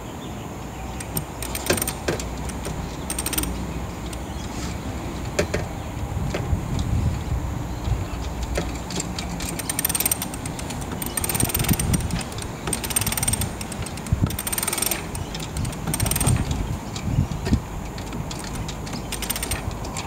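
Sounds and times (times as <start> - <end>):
hoisting gear ratcheting clicks: 1.0 - 4.4, 8.2 - 20.0.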